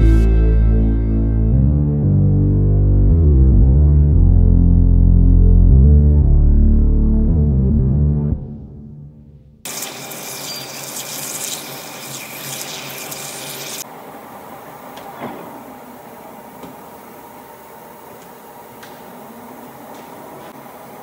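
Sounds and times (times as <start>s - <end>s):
coolant hissing on lathe: 9.7s - 13.8s.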